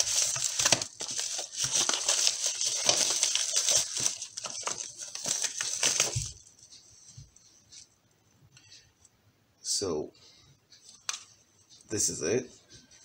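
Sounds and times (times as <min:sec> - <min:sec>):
wrapping crackling and rustling: 0:00.0 - 0:07.9.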